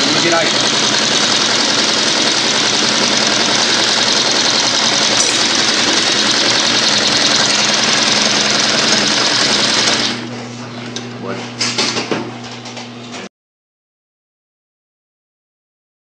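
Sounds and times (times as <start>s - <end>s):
sewing machine running: 0.0s - 10.3s.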